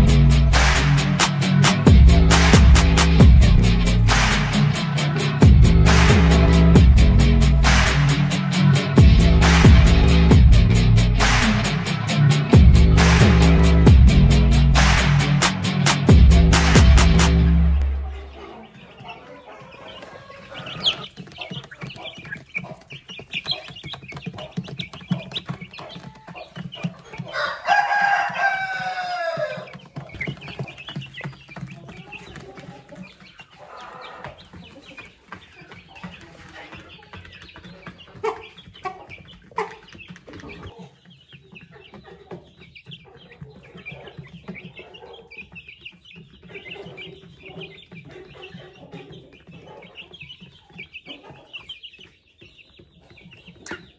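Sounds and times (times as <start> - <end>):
chicks clucking and cheeping: 0.0 - 53.9
rooster crowing: 27.3 - 29.7.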